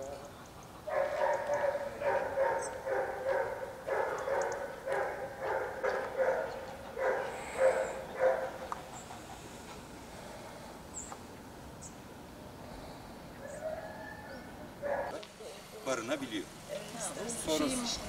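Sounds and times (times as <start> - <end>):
dog barking quickly: 0.8 - 8.6.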